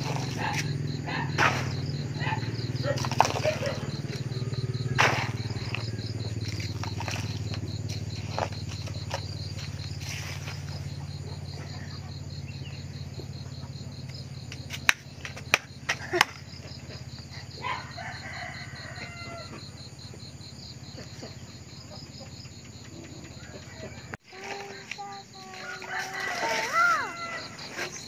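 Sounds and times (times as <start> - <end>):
insect chirping: 0.0 - 28.0
rooster crowing: 17.6 - 19.7, 23.4 - 24.2, 25.4 - 27.9.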